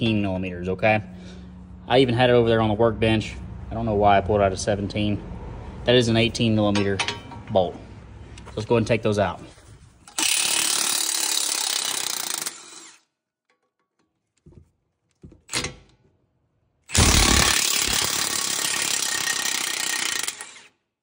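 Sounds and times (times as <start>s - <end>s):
cordless impact wrench hammering: 10.1s - 13.8s, 16.9s - 20.7s.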